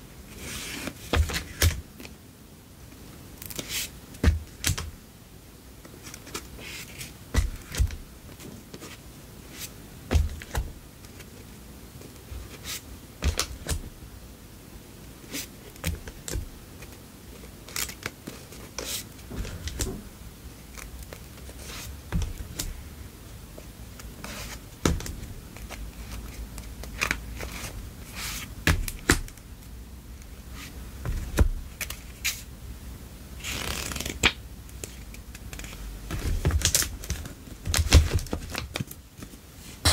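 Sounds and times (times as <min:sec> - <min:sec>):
paper cards tapping and clicking: 0:03.4 - 0:04.9, 0:07.4 - 0:08.0, 0:28.7 - 0:29.4, 0:33.6 - 0:39.0
memo pad pages riffling: 0:15.3 - 0:19.9, 0:33.4 - 0:39.9.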